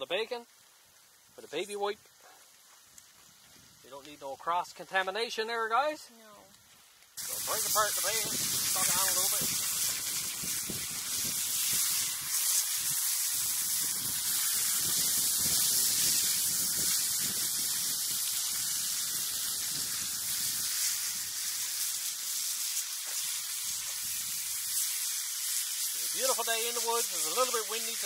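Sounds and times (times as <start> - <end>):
bacon sizzling in a frying pan: 0.0 - 5.7, 6.5 - 28.0.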